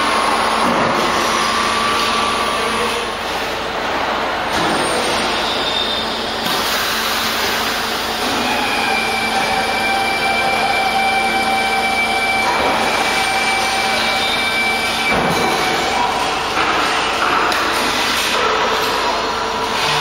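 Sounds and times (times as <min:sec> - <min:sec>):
conveyors and handling equipment: 0:00.0 - 0:20.0
high motor whine: 0:07.8 - 0:16.6.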